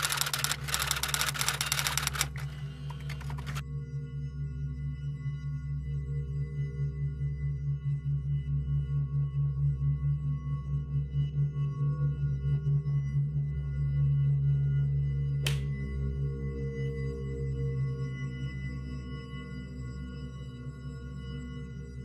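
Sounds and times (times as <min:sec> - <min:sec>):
steady ringing tones: 0:00.0 - 0:03.6.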